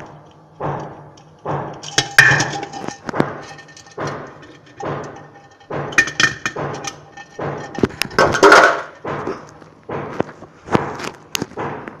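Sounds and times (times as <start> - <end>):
parrot knocking in clay pot: 0.8 - 9.1.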